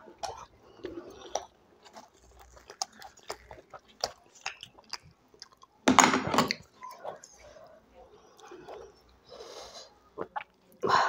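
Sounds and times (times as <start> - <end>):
mouth chewing food: 0.0 - 5.8, 6.5 - 9.3.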